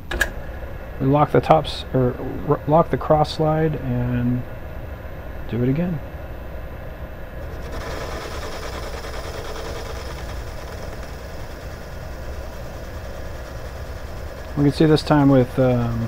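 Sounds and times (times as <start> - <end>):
lathe motor humming: 7.4 - 16.0
tool bit cutting metal hiss: 7.5 - 16.0.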